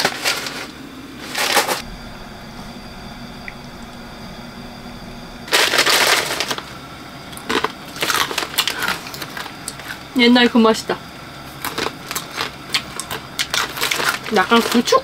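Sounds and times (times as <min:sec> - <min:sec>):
faint steady hum: 0:00.0 - 0:15.0
crunchy snack chewing: 0:11.5 - 0:14.3.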